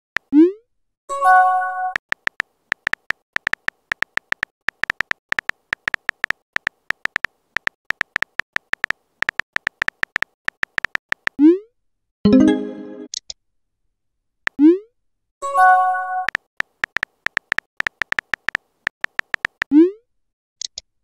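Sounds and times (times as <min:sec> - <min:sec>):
phone keyboard key clicks: 0:02.0 - 0:11.4, 0:16.3 - 0:19.7.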